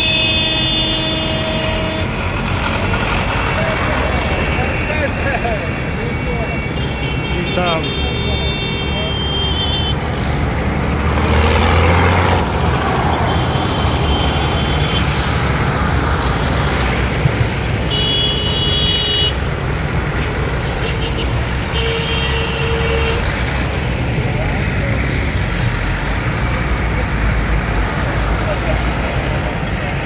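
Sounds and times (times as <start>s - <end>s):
horns sounding: 0.0s - 10.1s, 12.8s - 15.4s, 17.8s - 19.5s, 20.6s - 25.2s
tractor engines passing: 0.0s - 30.0s.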